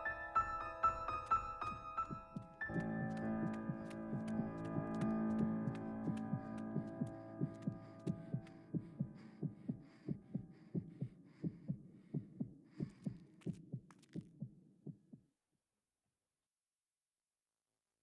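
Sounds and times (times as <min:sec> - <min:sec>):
low thumping pulse: 0:02.7 - 0:13.1.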